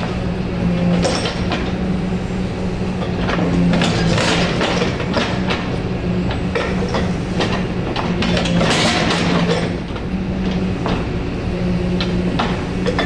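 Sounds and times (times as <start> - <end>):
excavator engine drone: 0.0 - 13.0
hydraulic breaker hammering: 3.1 - 11.1.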